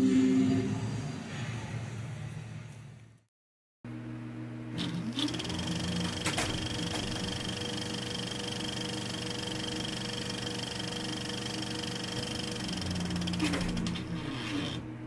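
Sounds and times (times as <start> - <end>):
steady low hum: 3.9 - 15.0.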